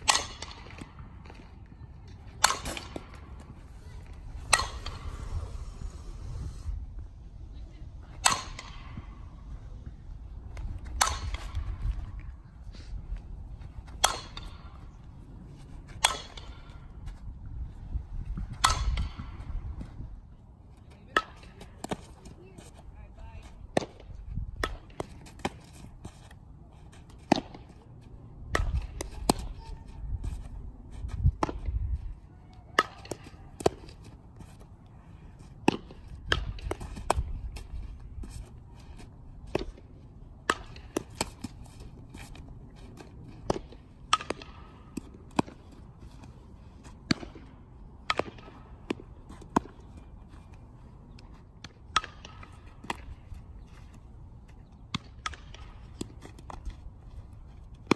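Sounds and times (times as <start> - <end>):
bat striking softball: 0.0 - 1.0, 2.3 - 3.6, 4.3 - 5.3, 8.1 - 9.1, 10.6 - 11.9, 13.9 - 14.8, 15.9 - 16.9, 18.4 - 19.9, 23.7 - 25.7, 27.1 - 27.7, 28.5 - 29.8, 31.3 - 31.8, 32.7 - 34.1, 35.6 - 37.8, 39.4 - 42.4, 43.0 - 45.7, 47.0 - 49.9, 51.6 - 53.4, 54.9 - 56.8, 57.7 - 57.9
low rumbling noise: 2.2 - 20.4.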